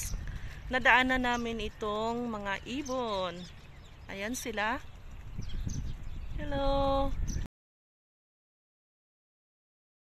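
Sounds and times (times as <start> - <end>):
faint high bird chirp: 0.0 - 7.5
wind rumbling on microphone: 0.0 - 7.5.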